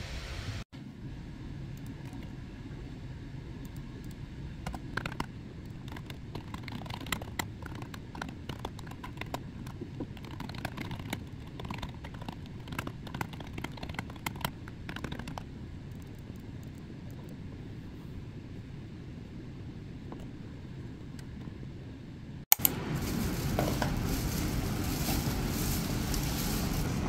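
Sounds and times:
steady low hum: 0.0s - 27.0s
typing on computer keyboard: 4.7s - 15.4s.

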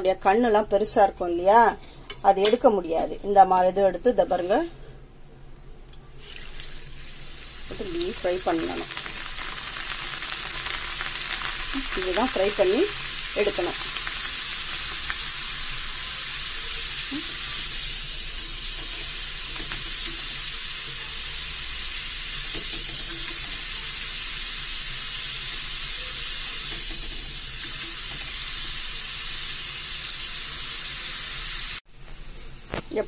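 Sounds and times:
lentils sizzling in hot oil: 6.2s - 31.8s.

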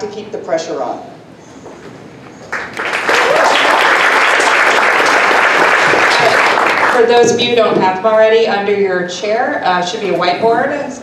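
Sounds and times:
audience applauding: 2.4s - 7.1s.

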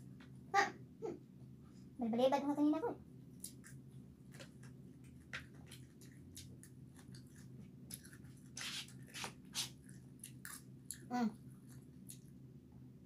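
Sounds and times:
person chewing: 3.4s - 12.4s.

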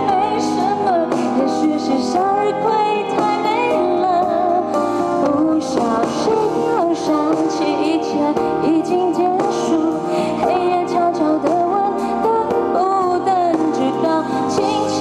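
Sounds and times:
live pop band: 0.0s - 15.0s
woman singing: 0.0s - 15.0s.

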